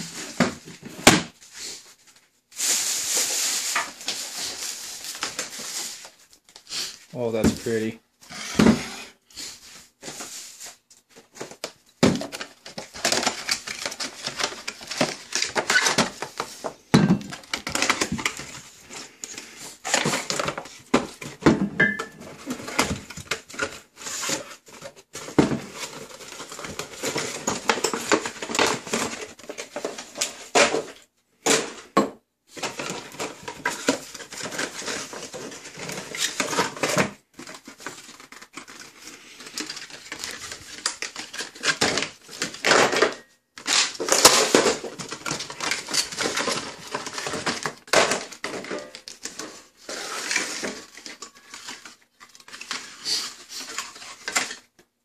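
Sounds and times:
cardboard rustling and tearing: 2.6 - 6.2, 10.0 - 16.6, 17.3 - 21.4, 22.3 - 31.0, 32.5 - 54.7
glass bottles clinking on counter: 21.8 - 22.2.

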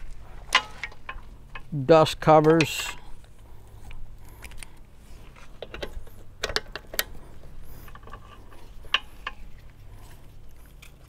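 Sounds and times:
metallic clicks of hydraulic couplers: 2.3 - 9.8.

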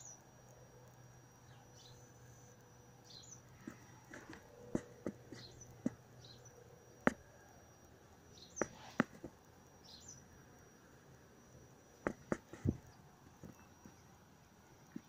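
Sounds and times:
sharp clicks and knocks: 8.6 - 9.4, 12.0 - 14.0.

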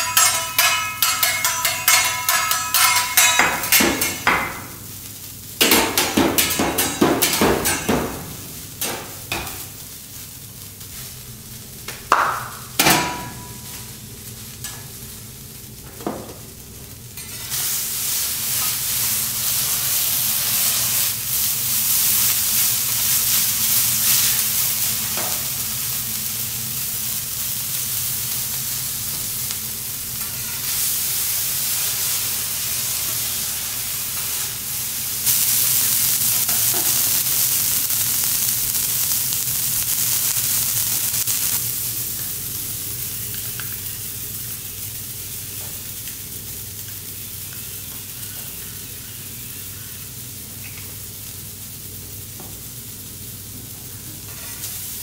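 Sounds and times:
spatulas clanking on griddle: 0.0 - 4.7, 5.6 - 9.7, 12.4 - 13.7, 17.2 - 17.6
food sizzling on griddle: 0.0 - 55.0.

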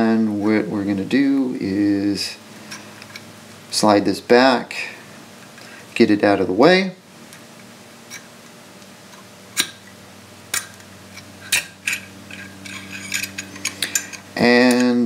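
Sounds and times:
small metal parts clicking: 11.4 - 15.0.

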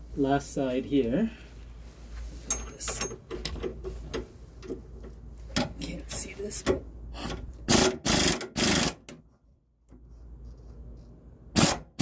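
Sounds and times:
pneumatic air ratchet bursts: 7.2 - 9.1, 11.5 - 12.0.

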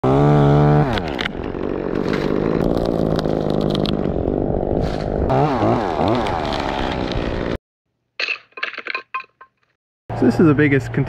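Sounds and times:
chainsaw running: 0.0 - 7.6.

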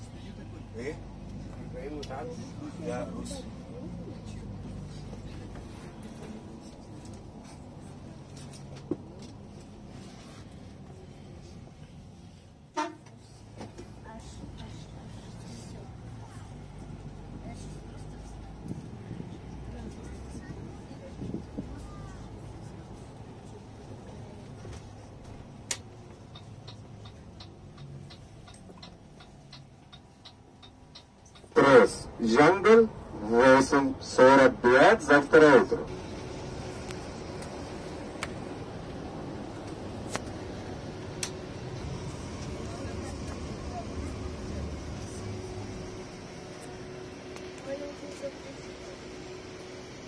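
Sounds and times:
coach engine hum: 0.0 - 50.0
road noise: 0.0 - 50.0
turn signal ticking: 25.8 - 31.6.

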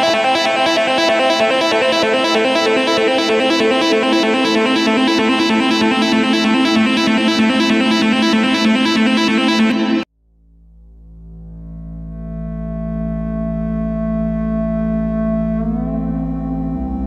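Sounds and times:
instrumental music with steady beat: 0.0 - 10.1.

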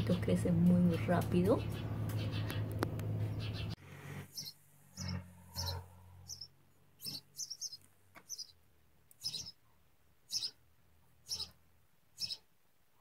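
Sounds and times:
low hum: 0.0 - 7.0
nestling birds chirping: 0.0 - 12.6.

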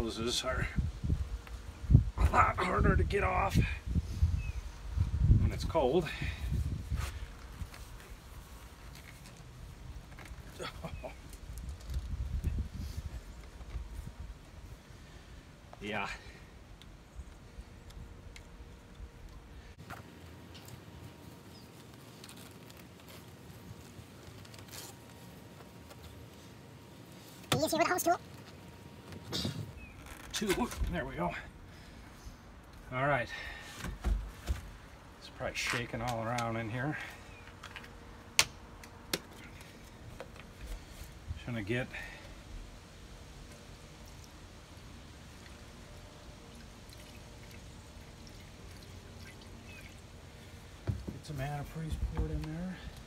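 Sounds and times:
liquid pouring trickle: 46.4 - 50.0.

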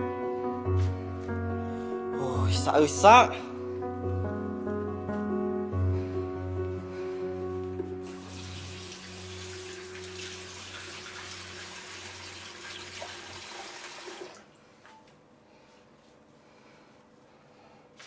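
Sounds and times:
tap water running into sink: 8.1 - 14.5.

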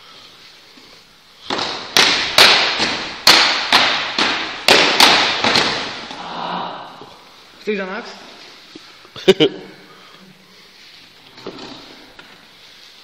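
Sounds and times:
plastic swords clacking: 1.5 - 6.2.

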